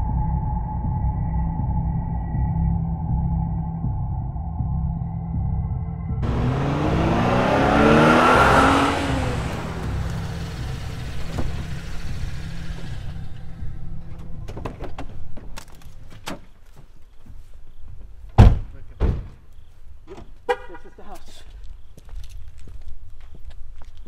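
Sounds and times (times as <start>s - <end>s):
car engine accelerating: 6.2s - 14.5s.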